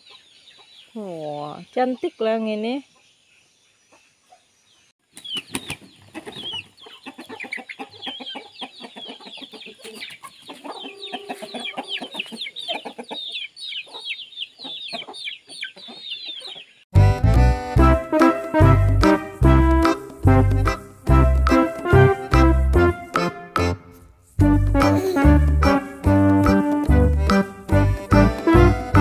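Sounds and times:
chickens peeping and chirping: 0.0s - 16.9s
music with a steady beat: 17.0s - 29.0s.

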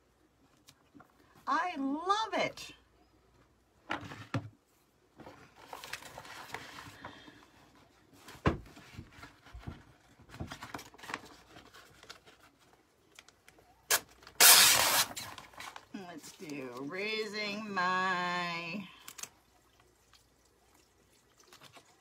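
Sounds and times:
plastic sheets rustling: 5.2s - 17.2s.

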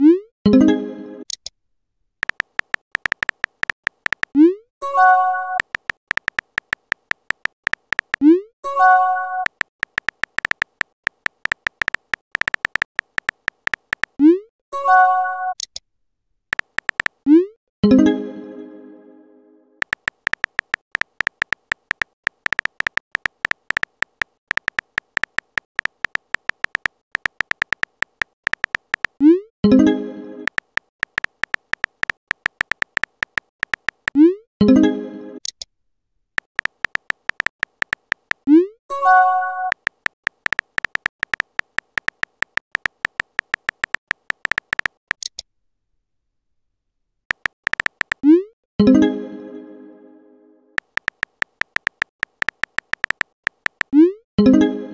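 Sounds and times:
phone keyboard key clicks: 2.2s - 4.4s, 5.6s - 8.2s, 9.4s - 14.2s, 16.5s - 17.2s, 19.8s - 29.2s, 30.5s - 34.2s, 36.4s - 38.5s, 39.7s - 45.4s, 47.3s - 48.2s, 50.8s - 54.0s.

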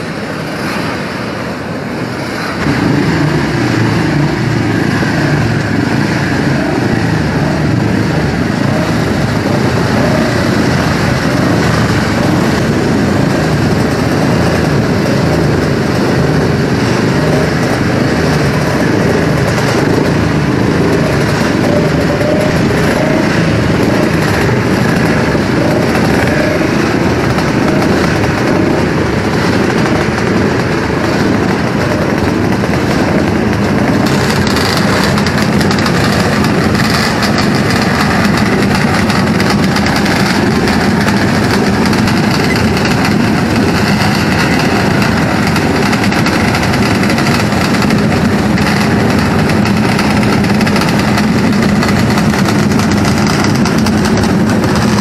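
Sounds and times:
low engine hum: 0.0s - 55.0s
many motorcycle engines running: 0.0s - 55.0s.

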